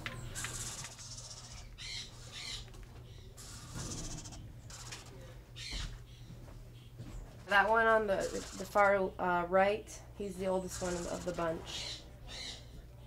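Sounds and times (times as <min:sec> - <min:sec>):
low steady hum: 0:00.0 - 0:13.0
owl chicks hissing calls: 0:00.3 - 0:05.8, 0:08.2 - 0:08.8, 0:10.8 - 0:12.7.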